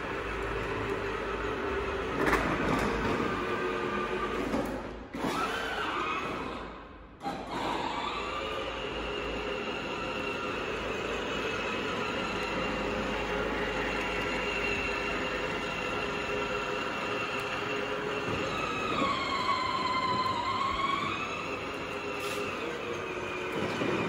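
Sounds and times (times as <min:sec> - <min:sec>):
toy car electric motor whining: 0:07.2 - 0:24.0.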